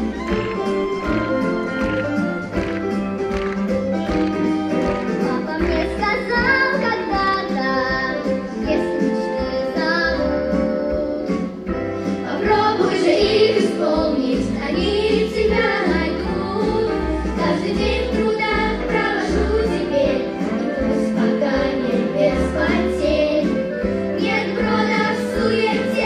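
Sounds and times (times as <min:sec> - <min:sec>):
girl singing into a microphone: 0:05.4 - 0:11.4.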